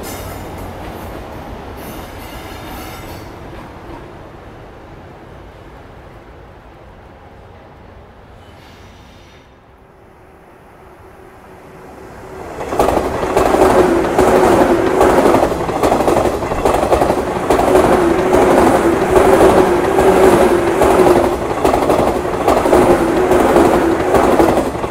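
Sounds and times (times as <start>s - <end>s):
train hum: 0.0s - 24.9s
wheels rushing on rail: 0.0s - 24.9s
clatter over rail joints: 12.6s - 24.9s.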